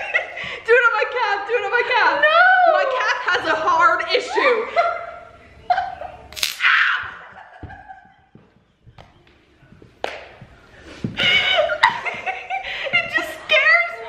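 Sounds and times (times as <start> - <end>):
people laughing: 0.0 - 0.6, 2.2 - 8.7, 10.9 - 14.0
stun gun crackling: 6.3 - 6.7.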